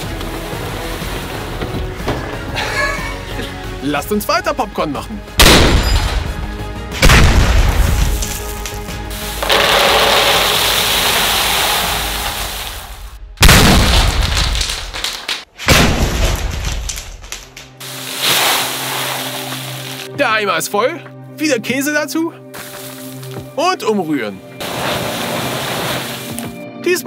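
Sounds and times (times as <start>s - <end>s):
background music: 0.0s - 14.2s, 15.7s - 27.0s
popcorn cannon booms: 7.0s - 8.2s, 13.4s - 17.3s
popcorn pouring into plastic bucket: 9.4s - 12.8s.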